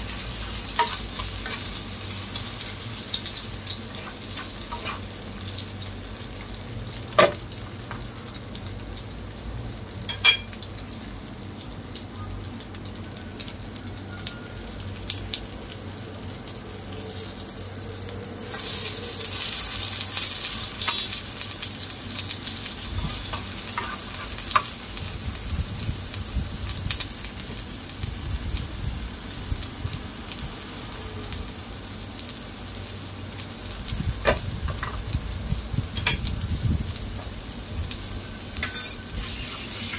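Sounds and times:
food sizzling in oil: 0:00.0 - 0:39.9.

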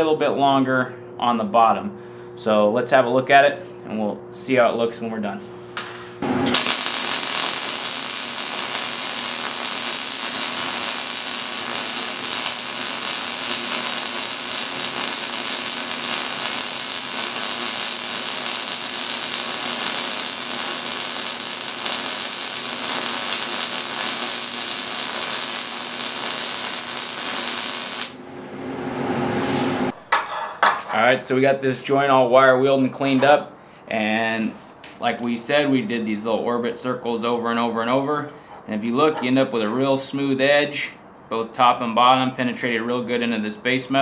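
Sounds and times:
welding arc crackling: 0:05.8 - 0:28.2.

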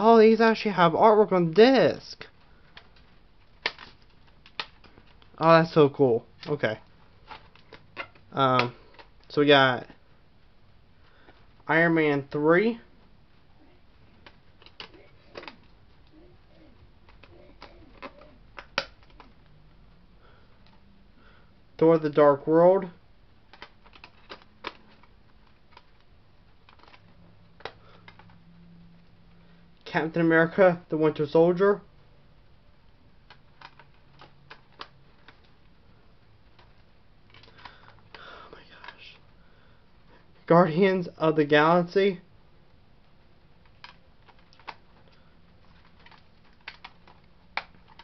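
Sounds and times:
discs clicking in plastic case: 0:02.5 - 0:05.4, 0:14.1 - 0:16.2, 0:17.0 - 0:19.5, 0:23.5 - 0:28.4, 0:33.2 - 0:35.7, 0:36.5 - 0:39.1, 0:43.6 - 0:48.0.

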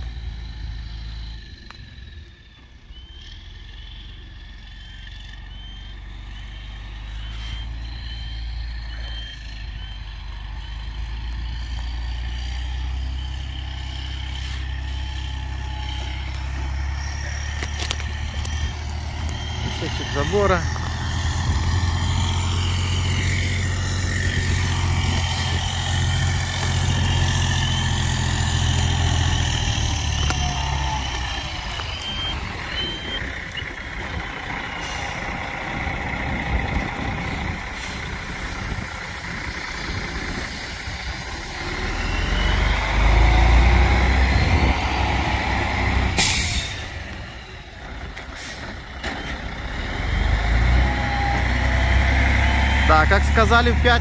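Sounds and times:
truck engine running: 0:00.0 - 0:54.0
air brake hiss: 0:46.2 - 0:47.0.

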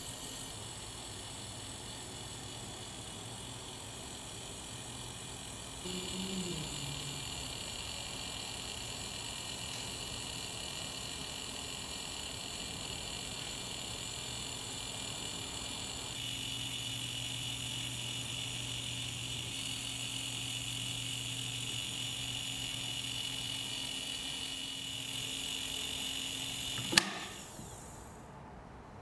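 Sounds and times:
small electric motors whirring: 0:00.0 - 0:28.2
sharp click: 0:26.8 - 0:27.5.

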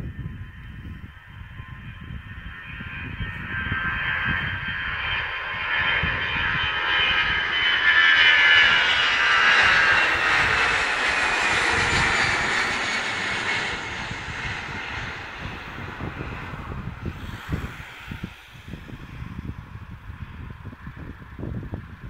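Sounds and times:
jet airliner taking off: 0:00.0 - 0:22.0.

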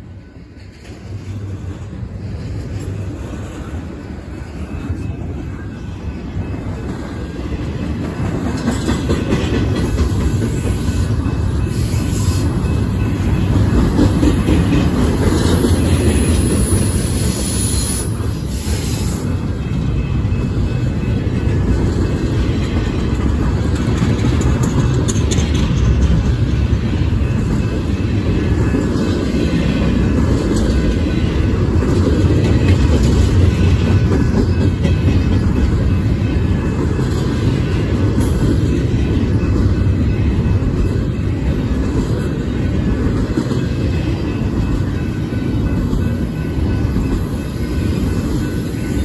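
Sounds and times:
train wheels rumbling on rails: 0:00.0 - 0:49.0.

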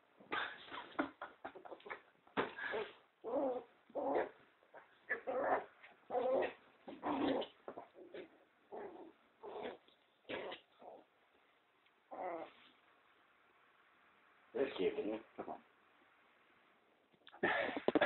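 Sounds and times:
puppy growling and whimpering: 0:02.6 - 0:11.1, 0:12.1 - 0:12.7.

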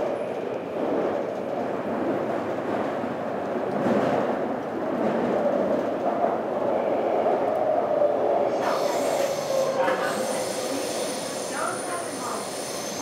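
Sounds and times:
train running with whine: 0:08.4 - 0:13.0.

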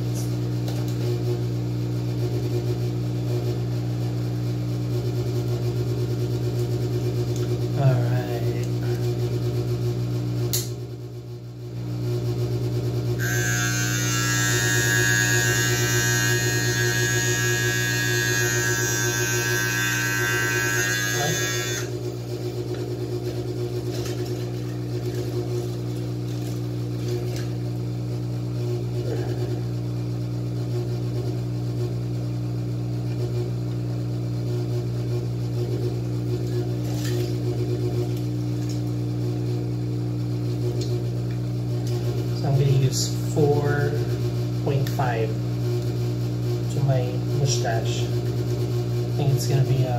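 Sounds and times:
beard trimmer buzzing: 0:13.2 - 0:22.0
blades rasping through hair: 0:13.2 - 0:22.0.

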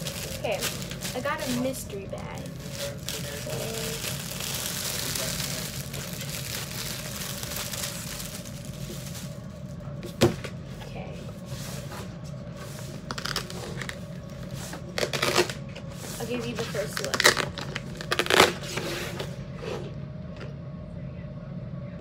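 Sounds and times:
cellophane wrapping crinkling: 0:00.0 - 0:09.8, 0:12.9 - 0:18.9.

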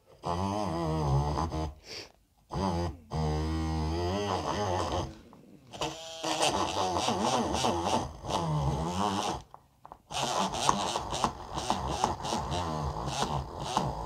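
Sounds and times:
mini drill whining into wood: 0:05.7 - 0:14.0.

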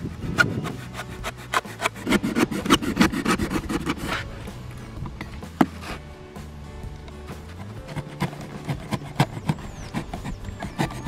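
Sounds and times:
knife cutting cardboard: 0:00.2 - 0:04.4, 0:05.6 - 0:06.1, 0:07.4 - 0:11.0.

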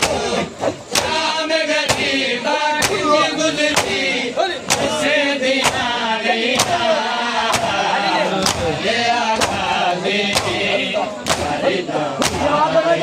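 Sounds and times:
men chanting a lament: 0:00.0 - 0:13.0
hands slapping bare chests: 0:00.9 - 0:01.2, 0:02.8 - 0:03.1, 0:03.7 - 0:04.0, 0:05.6 - 0:05.9, 0:06.6 - 0:06.8, 0:07.5 - 0:07.8, 0:08.4 - 0:08.7, 0:09.4 - 0:09.7, 0:10.3 - 0:11.6, 0:12.2 - 0:12.5.

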